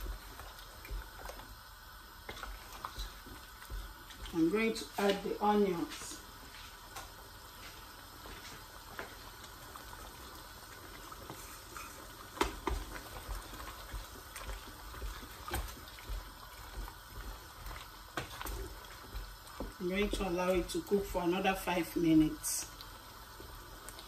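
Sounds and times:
wooden spoon stirring onions: 0.0 - 21.7
stew simmering: 0.0 - 24.0.

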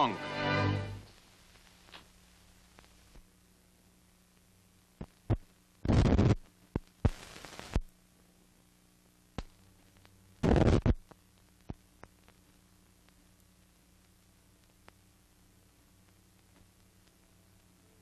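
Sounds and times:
film pops and clicks: 1.1 - 3.3, 5.0 - 8.0, 9.3 - 17.7
bursts of crackle: 5.0 - 7.9, 9.3 - 17.2.

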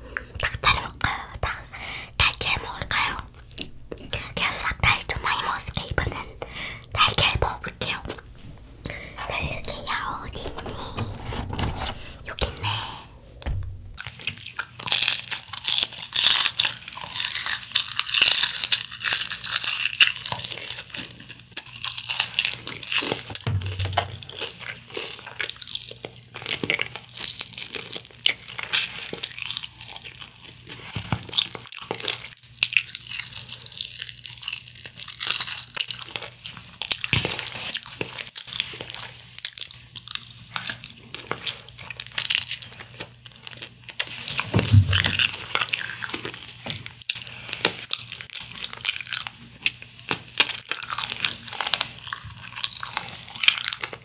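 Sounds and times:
crunching and chewing fried chicken: 14.0 - 54.0.

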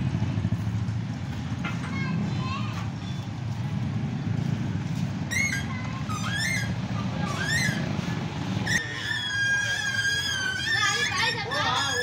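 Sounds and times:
bird calls rising and falling: 8.6 - 12.0.

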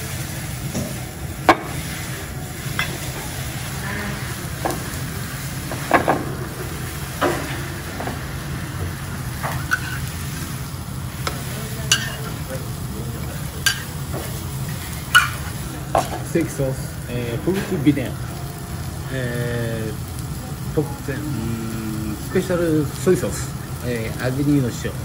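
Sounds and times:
griddle sizzling: 0.0 - 25.0
low steady hum: 0.0 - 25.0
tableware clinking: 9.4 - 10.1, 11.2 - 12.4, 13.6 - 14.3, 15.0 - 16.2.

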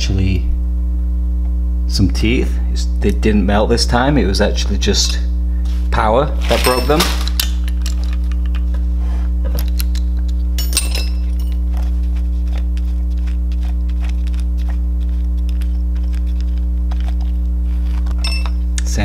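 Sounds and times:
loud steady low hum: 0.0 - 19.0.

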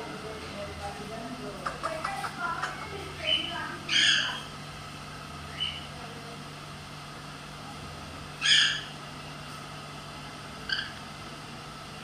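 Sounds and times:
parrot calling: 1.6 - 4.6, 5.5 - 5.9, 8.4 - 9.0, 10.6 - 11.0.

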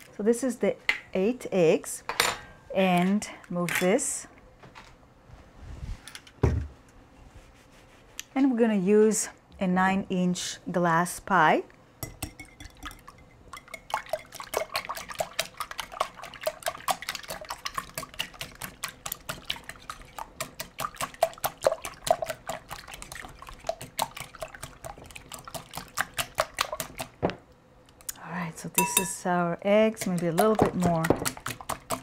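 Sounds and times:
beaten egg sloshing: 12.1 - 27.2, 29.9 - 32.0
whisk clicking against glass bowl: 30.0 - 32.0.

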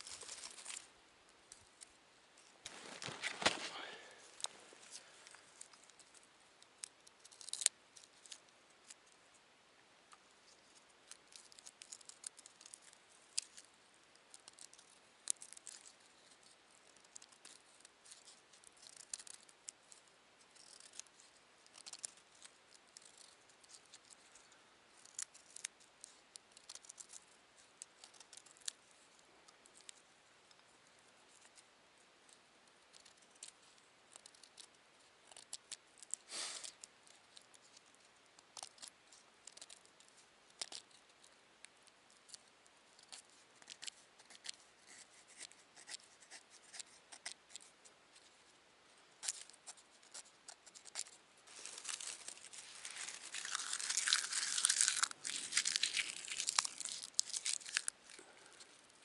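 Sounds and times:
twigs snapping and crackling: 0.0 - 0.9, 6.8 - 9.0, 21.7 - 22.2, 50.7 - 58.8
rustling: 0.0 - 9.2, 42.1 - 59.0.

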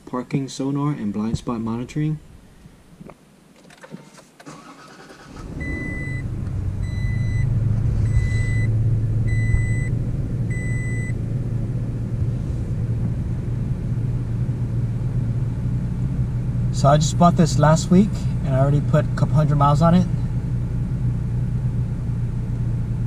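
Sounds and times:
car engine starting and idling: 3.6 - 23.0
dashboard warning chime: 5.6 - 7.5, 8.1 - 8.7, 9.3 - 9.9, 10.5 - 11.2.

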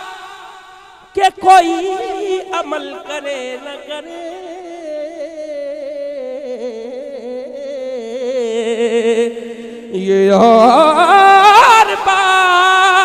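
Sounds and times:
man singing ornamented note: 1.2 - 13.0.

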